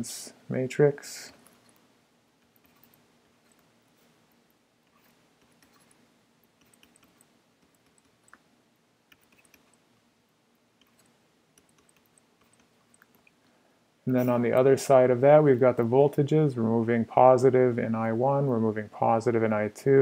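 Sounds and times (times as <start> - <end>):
faint steady hum: 0.0 - 20.0
faint clicks and taps: 10.8 - 13.5.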